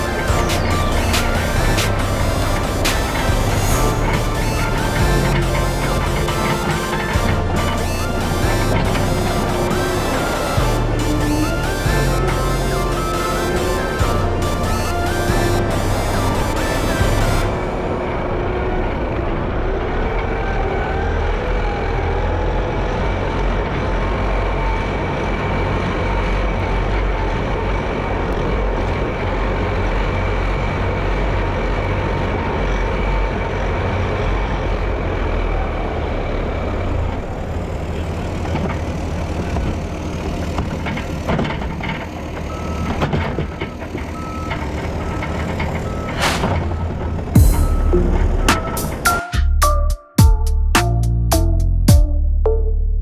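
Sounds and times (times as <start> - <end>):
reversing alarm beeping: 0.0 - 17.8, 42.3 - 50.6
heavy paving machinery running: 0.0 - 49.6.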